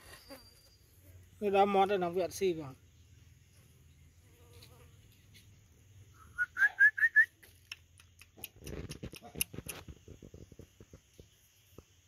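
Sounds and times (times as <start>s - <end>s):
whistled chirps rising in pitch: 6.1s - 7.4s.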